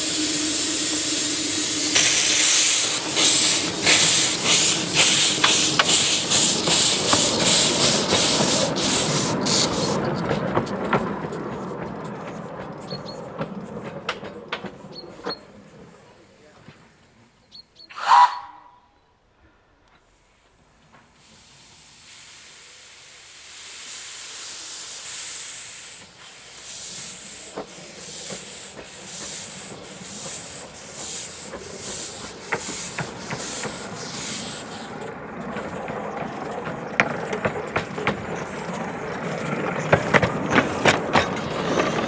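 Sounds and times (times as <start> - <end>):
steam whistle blast: 0.0 - 2.9, 18.0 - 18.7
rail clatter: 0.0 - 16.0, 26.0 - 42.0
steam locomotive chuffing: 0.0 - 16.5, 21.1 - 42.0.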